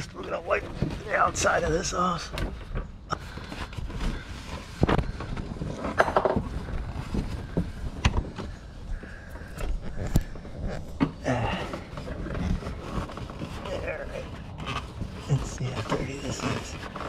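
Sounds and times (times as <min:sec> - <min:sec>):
paper towel wiping plastic: 0:11.6 - 0:17.0.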